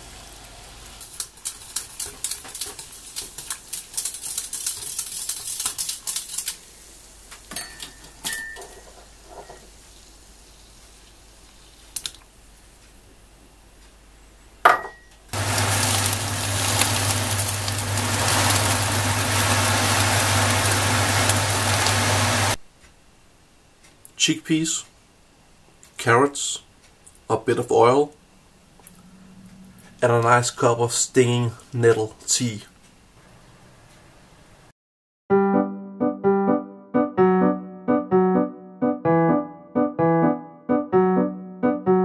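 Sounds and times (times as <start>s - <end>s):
liquid pouring crackling: 0.0s - 6.8s, 15.4s - 22.6s.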